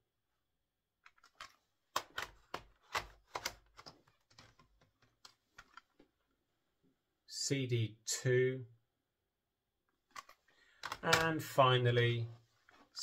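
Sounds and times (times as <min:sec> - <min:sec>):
plastic cases clicking and knocking: 0:01.1 - 0:06.0, 0:10.1 - 0:11.4.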